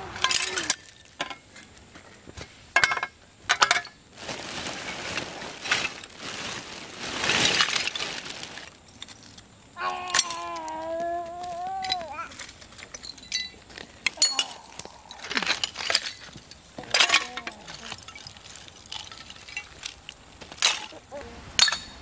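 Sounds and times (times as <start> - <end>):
glass bottles clinking: 0.2 - 1.5, 2.8 - 4.0, 10.1 - 10.4, 11.8 - 21.0, 21.6 - 22.0
plastic bag rustling: 3.7 - 9.5, 10.2 - 21.6.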